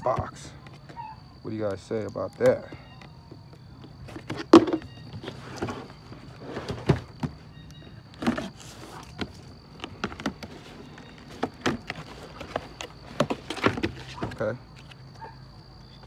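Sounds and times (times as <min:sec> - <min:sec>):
cardboard box scraping and knocking: 0:04.1 - 0:07.5, 0:08.2 - 0:14.4.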